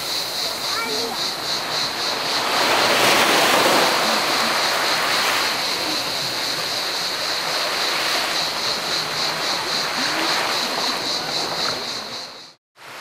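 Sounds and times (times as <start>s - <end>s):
cicadas buzzing: 0.0s - 13.0s
small waves breaking: 0.5s - 13.0s.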